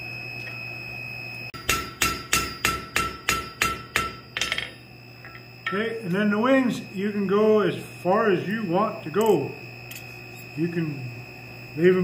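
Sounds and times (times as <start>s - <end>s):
hammer striking steel on anvil: 1.6s - 4.8s.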